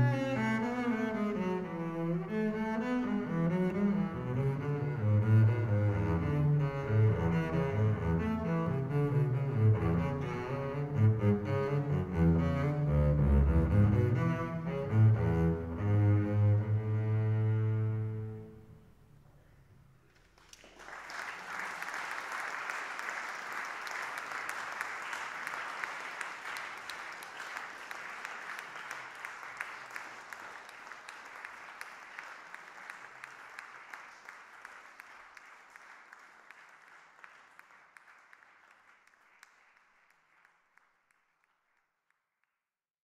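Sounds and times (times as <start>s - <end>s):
audience applauding: 20.1s - 41.7s.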